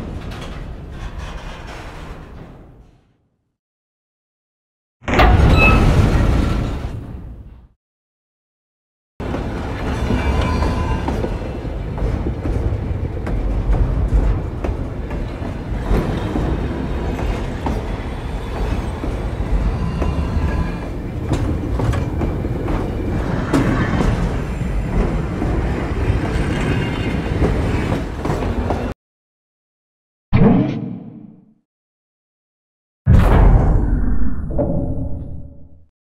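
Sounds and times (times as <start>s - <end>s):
metallic clanks and rattles: 0.0s - 3.1s.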